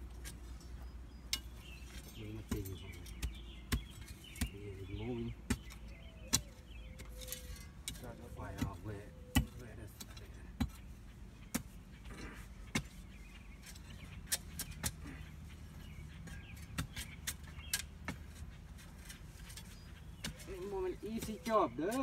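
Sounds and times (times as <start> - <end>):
digging tool knocking on soil: 1.4 - 7.3, 7.9 - 22.0.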